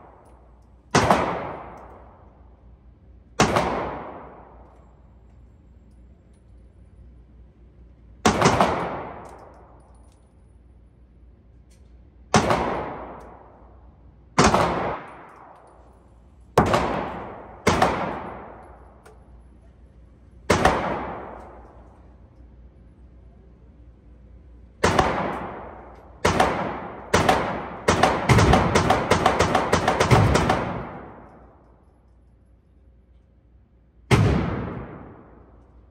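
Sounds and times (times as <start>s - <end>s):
handgun shots echoing indoors: 0.0s - 5.2s, 7.4s - 22.7s, 24.6s - 33.3s, 34.0s - 35.9s.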